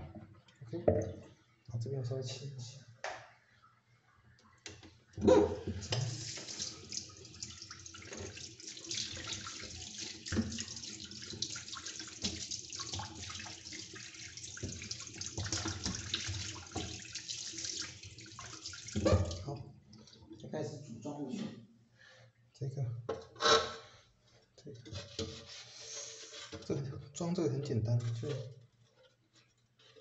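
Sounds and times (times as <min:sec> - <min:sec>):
tap water running and splashing: 0:05.5 - 0:20.4.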